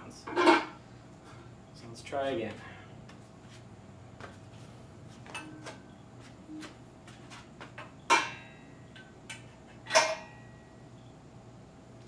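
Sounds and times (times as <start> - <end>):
ringing metal clank: 8.1 - 9.1, 9.9 - 10.7.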